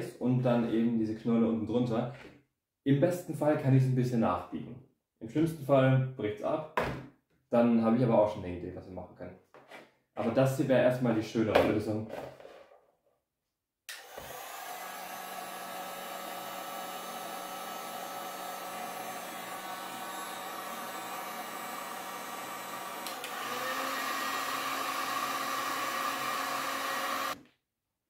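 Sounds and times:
heat gun fan whirring: 13.9 - 27.4.

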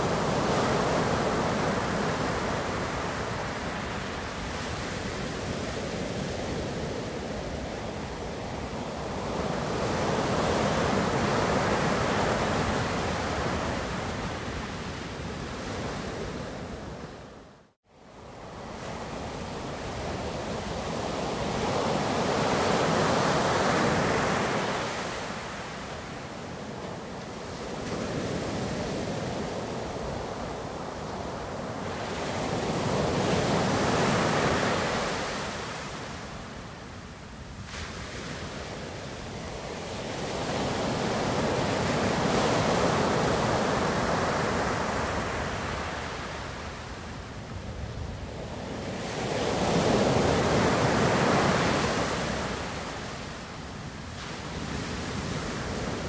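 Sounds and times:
ocean waves washing in and out: 0.0 - 56.0.

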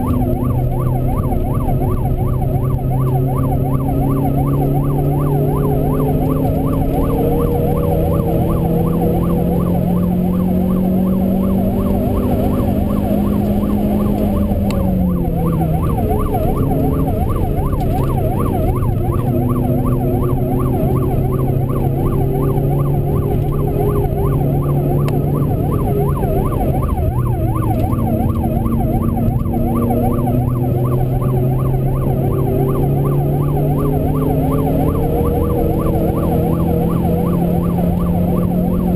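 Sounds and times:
car engine running under load: 0.0 - 38.9
siren warbling: 0.0 - 38.9.

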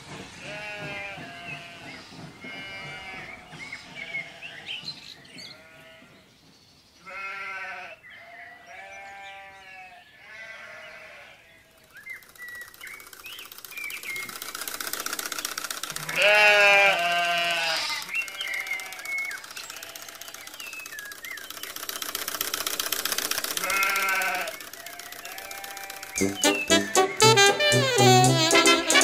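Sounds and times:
sheep bleating: 0.4 - 1.8, 7.1 - 11.4, 16.0 - 19.2, 23.6 - 24.6
short high chirps: 26.2 - 29.0.

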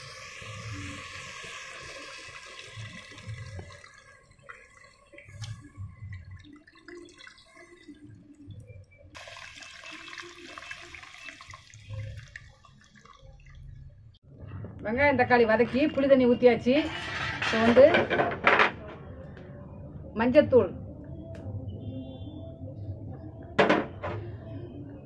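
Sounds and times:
water pouring into a clay pot: 0.0 - 14.2
liquid dripping and trickling: 1.8 - 14.2.

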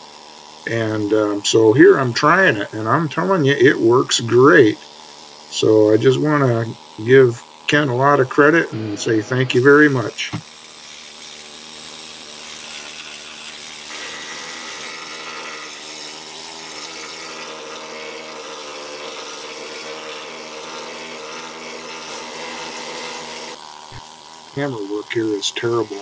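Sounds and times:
needle scaler hammering on metal: 7.8 - 11.5.

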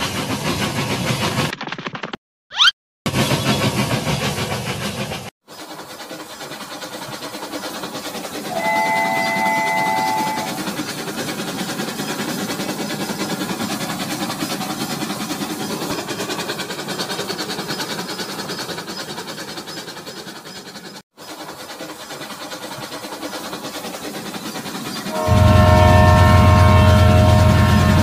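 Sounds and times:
toy train whirring on track: 2.6 - 28.0
toy train whistle: 8.5 - 10.7, 25.1 - 28.0.

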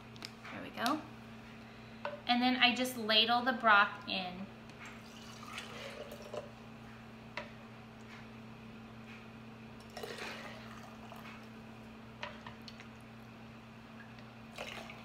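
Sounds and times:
steady low hum: 0.0 - 15.0
dripping: 4.8 - 6.5, 9.9 - 11.5, 14.1 - 15.0
broth pouring into a jar: 5.0 - 6.4.

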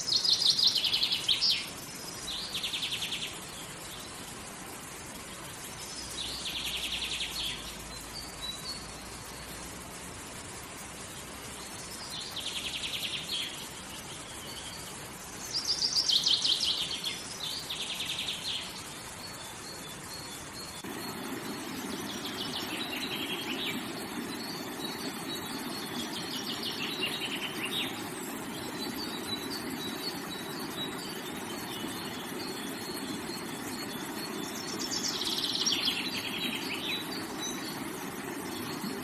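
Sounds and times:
songbirds trilling: 11.6 - 39.0
rocky stream rushing: 20.8 - 39.0.

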